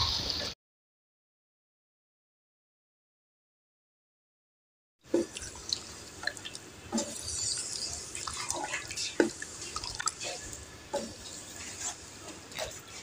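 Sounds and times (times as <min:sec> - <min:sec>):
light frying sizzle: 0:05.1 - 0:13.0
wet squelching: 0:05.2 - 0:10.4
spatula stirring thick sauce: 0:06.9 - 0:13.0.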